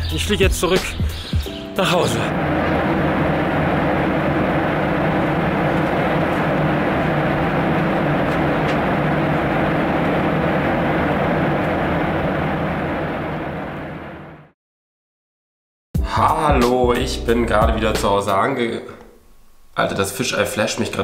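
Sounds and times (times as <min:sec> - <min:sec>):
airliner cabin noise: 0:01.8 - 0:14.6.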